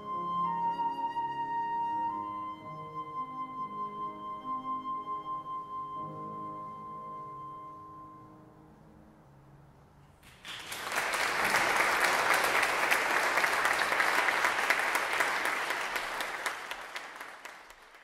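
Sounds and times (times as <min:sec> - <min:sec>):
audience applauding: 0:10.2 - 0:18.0.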